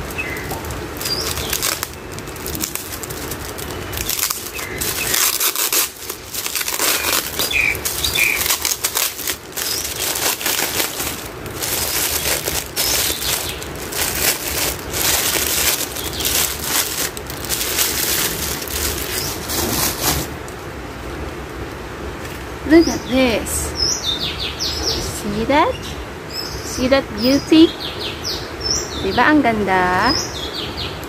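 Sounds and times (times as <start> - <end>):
plastic wrapping crinkling: 0.0 - 20.4.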